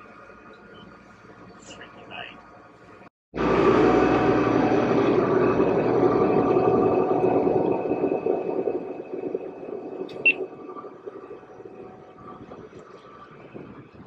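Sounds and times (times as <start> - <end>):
boat engine running: 3.3 - 14.0
water rushing along hull: 3.4 - 14.0.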